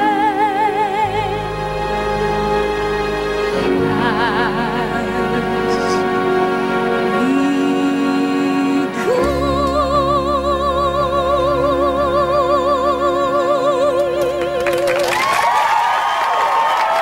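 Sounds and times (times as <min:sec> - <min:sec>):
woman singing with vibrato: 0:00.0 - 0:02.9, 0:03.6 - 0:06.4, 0:07.1 - 0:15.4
orchestral chord: 0:00.0 - 0:14.9
audience applause: 0:14.2 - 0:17.0.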